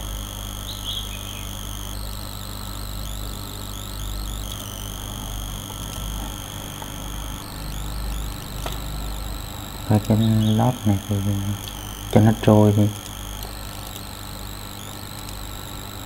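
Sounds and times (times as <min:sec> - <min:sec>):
high-pitched whine: 0:00.0 - 0:16.0
low electrical hum: 0:00.0 - 0:16.0.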